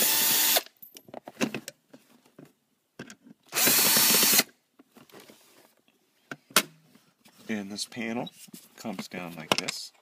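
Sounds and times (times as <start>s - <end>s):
cordless drill spinning screw: 0.0s - 0.6s, 3.5s - 4.5s.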